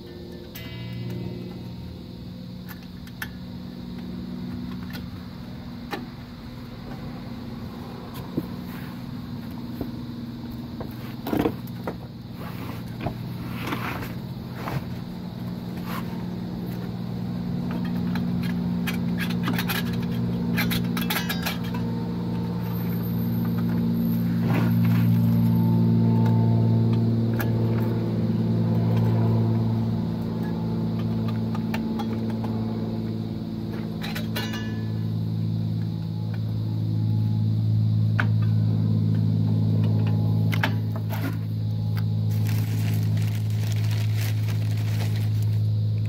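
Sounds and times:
steady low hum: 0.0s - 46.0s
metallic clinks and scrapes: 17.8s - 22.0s.

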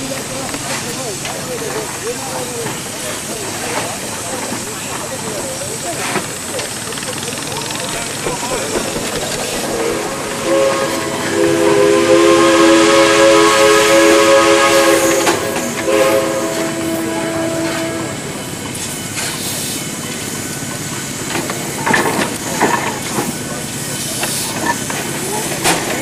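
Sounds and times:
steam hissing: 0.0s - 26.0s
steam whistle chord: 9.6s - 18.2s.

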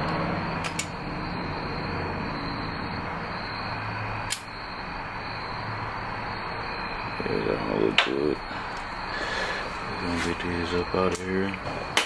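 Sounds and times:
faint high steady tone: 0.0s - 12.0s
sharp click: 0.6s - 1.0s, 4.3s - 4.5s.

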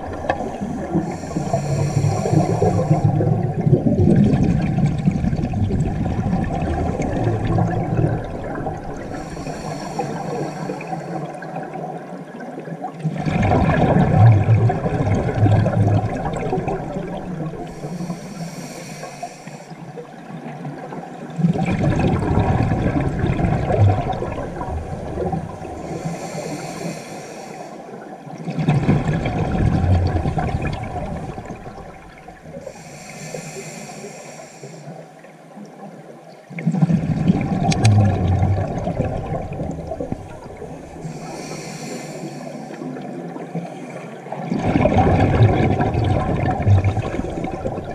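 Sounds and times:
bubbling exhaled air: 0.0s - 11.7s, 13.1s - 19.8s, 21.4s - 27.8s, 28.5s - 34.8s, 36.6s - 47.9s
hissing inhale through regulator: 0.8s - 3.3s, 8.9s - 11.3s, 17.6s - 19.8s, 25.7s - 28.0s, 32.6s - 35.1s, 40.9s - 44.3s.

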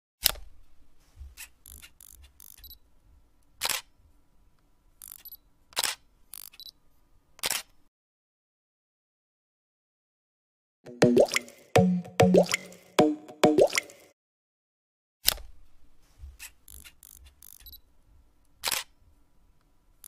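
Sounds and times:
faint camera mechanism clicks: 3.5s - 3.9s, 5.0s - 6.8s, 7.4s - 7.8s, 18.5s - 19.0s
camera shutter clicks: 3.6s - 3.9s, 5.0s - 6.7s, 7.4s - 7.7s, 18.6s - 18.9s.

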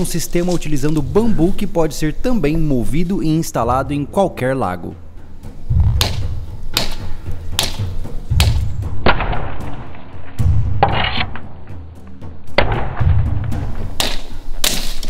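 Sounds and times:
background music with low beat: 0.0s - 15.0s
knife chopping bamboo: 5.7s - 8.7s, 13.9s - 15.0s.

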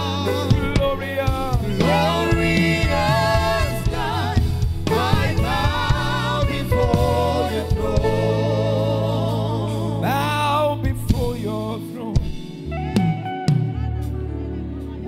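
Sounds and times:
man singing: 0.0s - 4.3s, 4.9s - 12.7s
woman singing: 0.0s - 10.4s
band playing: 0.0s - 15.0s.

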